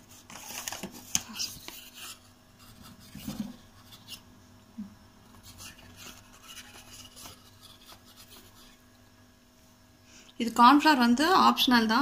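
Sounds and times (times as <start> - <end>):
plastic packet rustling: 0.1 - 1.8
spoon scraping powder: 5.4 - 8.8.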